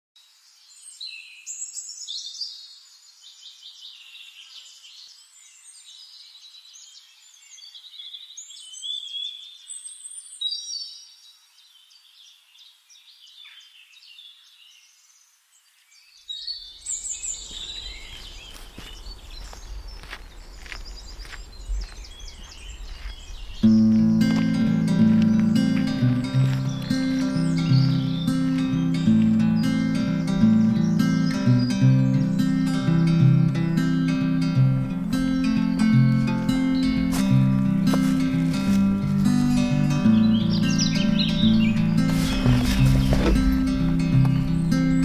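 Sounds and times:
birds chirping and trilling: 0.2s - 45.0s.

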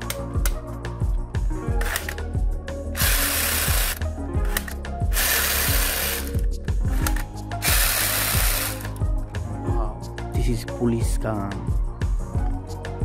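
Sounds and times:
background music with beat: 0.0s - 13.0s
toy gun firing rattling bursts: 7.7s - 8.8s.

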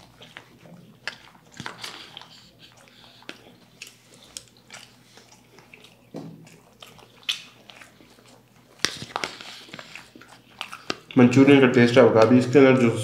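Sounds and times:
biting and chewing: 0.0s - 13.0s
mouth clicks and crunches: 0.0s - 13.0s.

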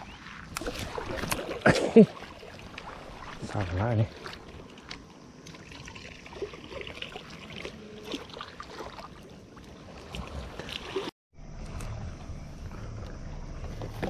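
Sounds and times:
small waves washing on shore: 0.2s - 11.1s.

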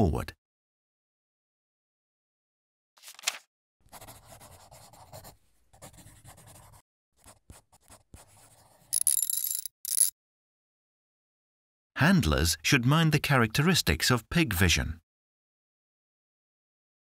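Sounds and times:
marker scribbling on whiteboard: 3.9s - 8.9s.

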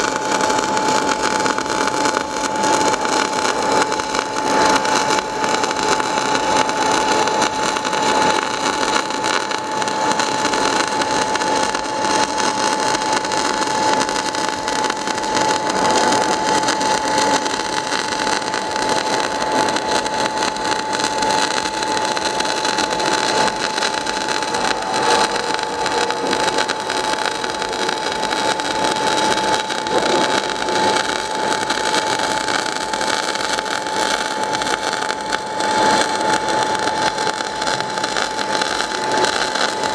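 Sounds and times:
welding arc crackling hiss: 0.0s - 39.9s
steady high tone: 23.4s - 28.6s.

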